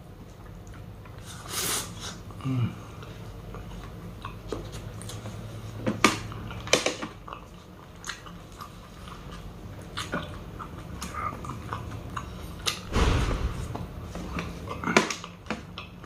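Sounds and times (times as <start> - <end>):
close chewing: 0.2 - 12.8.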